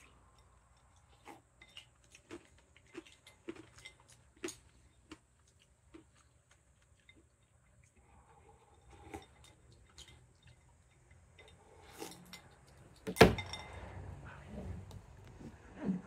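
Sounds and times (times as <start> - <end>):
glass bowl clinking on wooden floor: 10.9 - 14.0.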